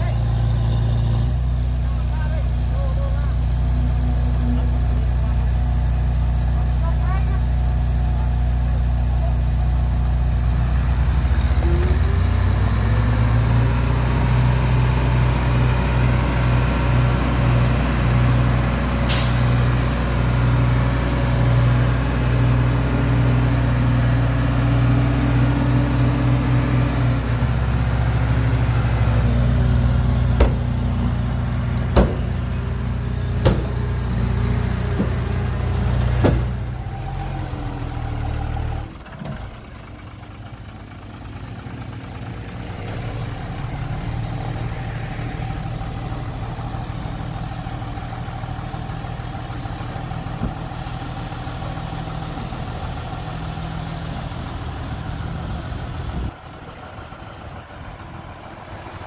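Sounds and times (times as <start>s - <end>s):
heavy vehicle engine running: 0.0s - 59.0s
sharp engine knocks: 30.3s - 30.8s, 31.7s - 32.5s, 33.3s - 33.9s, 34.9s - 35.3s, 36.2s - 36.6s.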